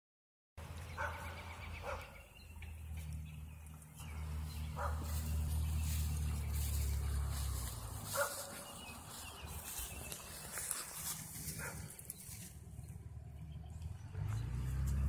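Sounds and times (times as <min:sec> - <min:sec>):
dog barking: 0:01.0 - 0:02.2, 0:04.8 - 0:05.1, 0:08.1 - 0:08.7, 0:11.5 - 0:12.0.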